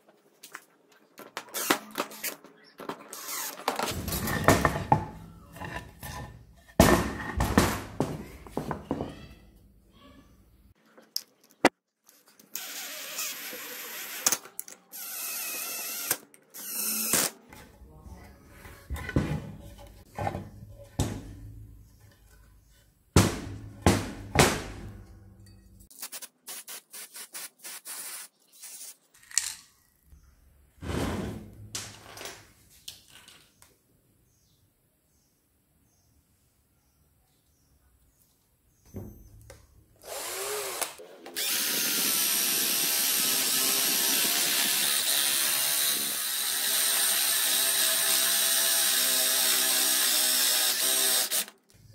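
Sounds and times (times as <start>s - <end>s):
wooden pieces clacking and thudding: 0.5s - 9.3s
power drill running: 40.0s - 51.5s.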